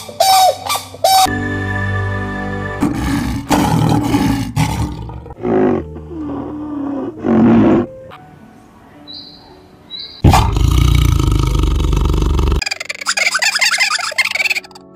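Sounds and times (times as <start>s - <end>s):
held musical tone: 0.1s - 3.6s
wild animal roaring and growling: 2.8s - 7.9s, 10.2s - 12.6s.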